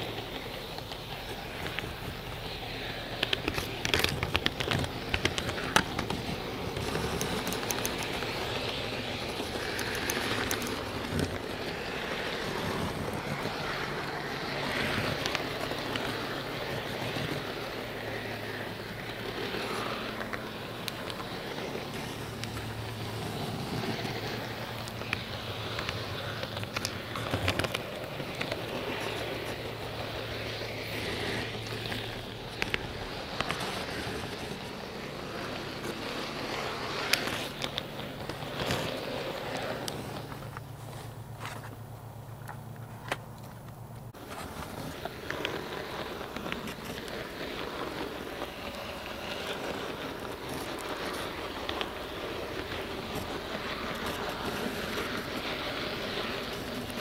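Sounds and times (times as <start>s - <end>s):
model train car rolling rustle: 0.0s - 57.0s.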